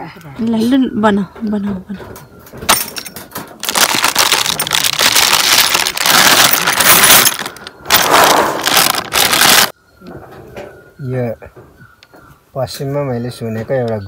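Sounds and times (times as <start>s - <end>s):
small metal pieces clinking: 2.7s - 9.7s
plastic snack packet rustling: 3.6s - 9.7s.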